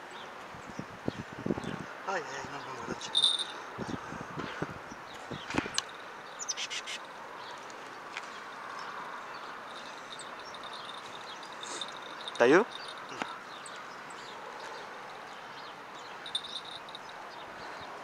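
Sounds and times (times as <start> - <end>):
outdoor background noise: 0.0 - 18.0
bird chirps: 9.4 - 17.8.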